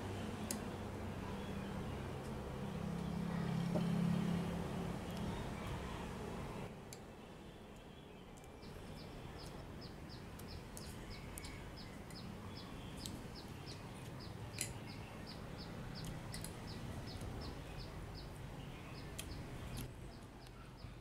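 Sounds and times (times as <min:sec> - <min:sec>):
small bird chirping: 0:07.8 - 0:21.0.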